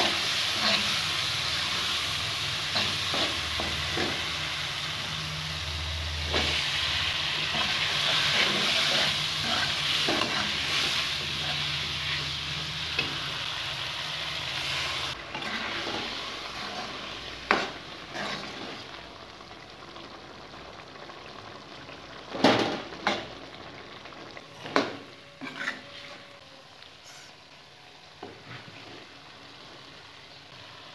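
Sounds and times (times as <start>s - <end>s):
food sizzling in a pot: 0.0s - 30.9s
metal spoon scraping a pot: 25.4s - 26.2s.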